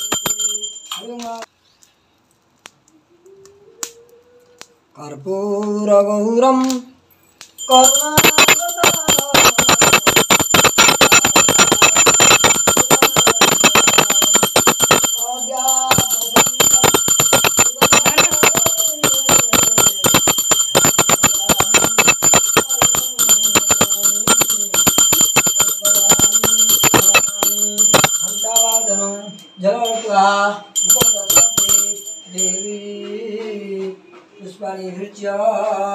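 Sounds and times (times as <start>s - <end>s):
hand bell ringing rapidly: 0.0s - 1.4s, 7.6s - 33.0s
man chanting: 4.9s - 7.0s.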